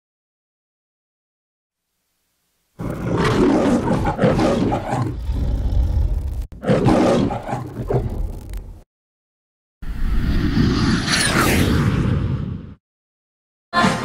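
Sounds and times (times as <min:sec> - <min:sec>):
lion roar: 0:02.8 - 0:08.5.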